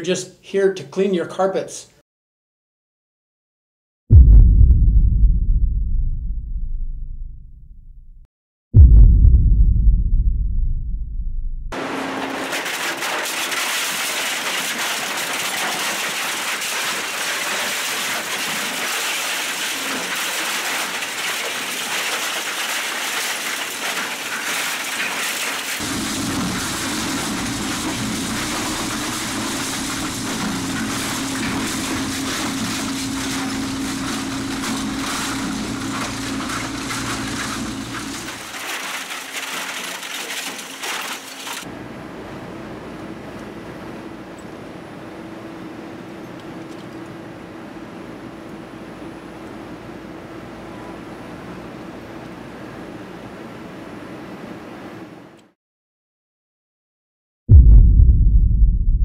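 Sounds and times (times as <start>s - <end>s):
machine low hum: 8.8s - 11.8s, 25.8s - 38.3s
shredder crunching plastic and metal: 11.8s - 41.7s.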